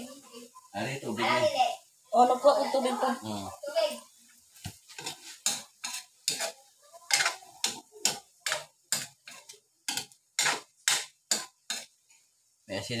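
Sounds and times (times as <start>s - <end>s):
metal spatula scraping a wok: 4.8s - 12.2s.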